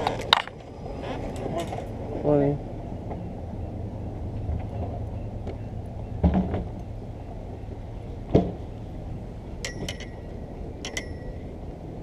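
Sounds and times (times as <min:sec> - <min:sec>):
tackle clinking on metal railing: 0:09.6 - 0:11.5.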